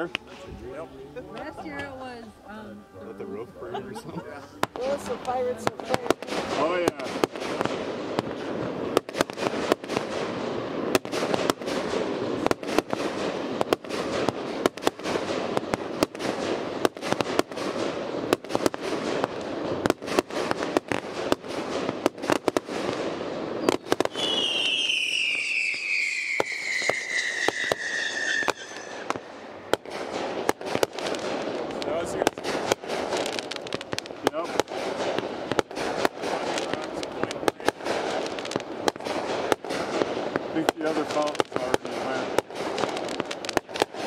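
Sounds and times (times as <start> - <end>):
firework bangs: 3.7 - 44.0
falling firework whistle: 23.6 - 30.2.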